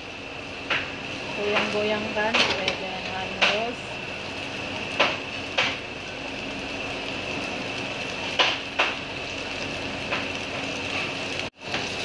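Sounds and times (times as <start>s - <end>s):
omelette sizzling in oil: 0.0s - 12.0s
wok knocking against burner: 0.6s - 3.8s, 4.9s - 5.9s, 8.3s - 9.1s, 10.0s - 12.0s.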